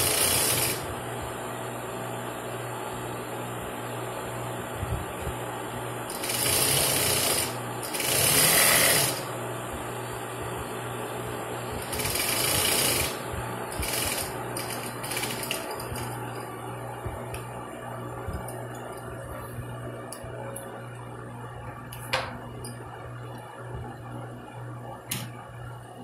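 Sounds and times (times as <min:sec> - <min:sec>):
industrial sewing machine stitching: 0:00.0 - 0:00.9, 0:06.1 - 0:09.3, 0:11.8 - 0:16.1
motor hum: 0:04.6 - 0:26.0.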